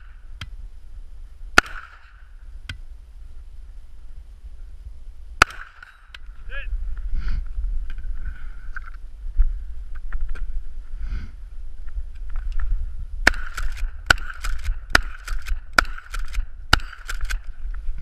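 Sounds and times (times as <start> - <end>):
shotgun shots: 1.6 - 2.3, 5.4 - 6.1, 13.2 - 17.5
shotgun pump clacks: 13.3 - 17.5.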